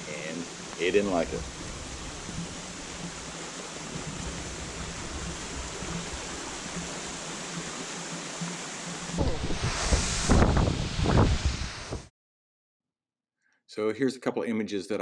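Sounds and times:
waterfall rushing: 0:00.0 - 0:12.0
wind buffeting microphone: 0:00.8 - 0:07.0, 0:09.1 - 0:12.1.

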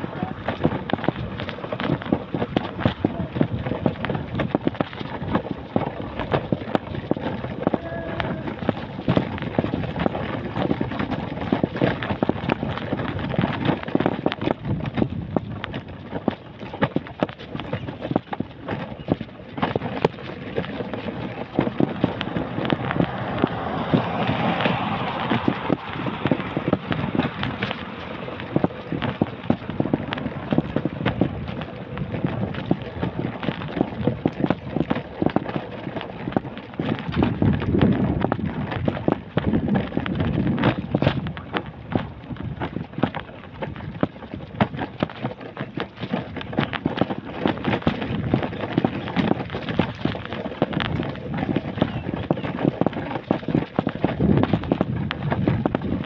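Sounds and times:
footsteps on pavement: 0:00.0 - 0:56.0.

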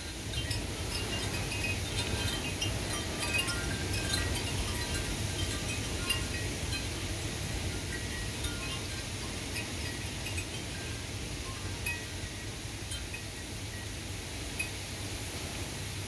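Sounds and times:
wind chimes ringing: 0:00.0 - 0:14.8
gusting wind rush: 0:00.0 - 0:15.6.

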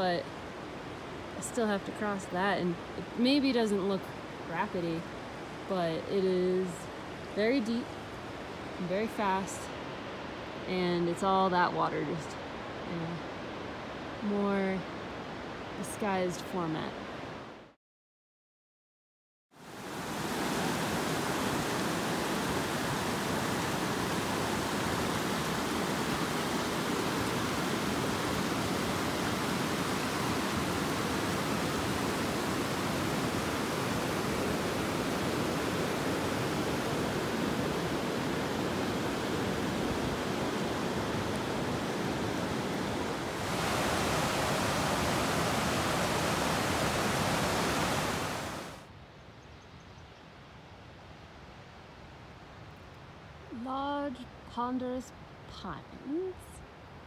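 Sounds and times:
river rushing over rapids: 0:19.6 - 0:48.9.

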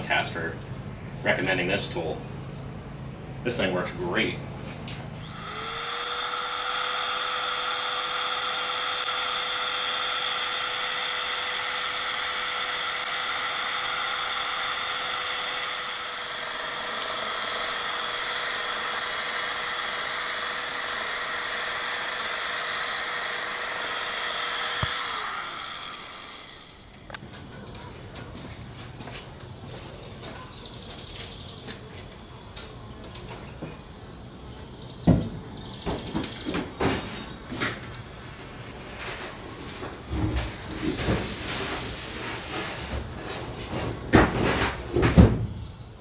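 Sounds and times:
belt sander whining: 0:05.0 - 0:27.5
sander switch click: 0:24.8 - 0:25.0.

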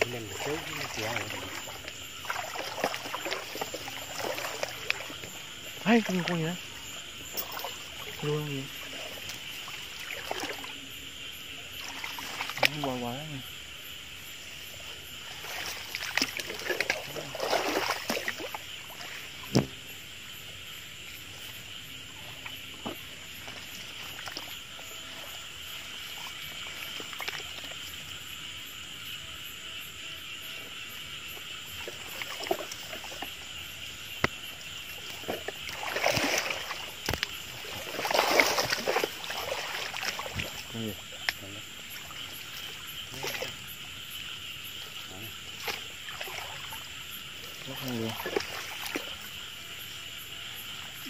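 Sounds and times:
light splashing: 0:00.0 - 0:10.9, 0:11.5 - 0:13.4, 0:14.6 - 0:20.0, 0:21.3 - 0:28.2, 0:31.4 - 0:51.0
sharp knock: 0:19.5 - 0:19.8.

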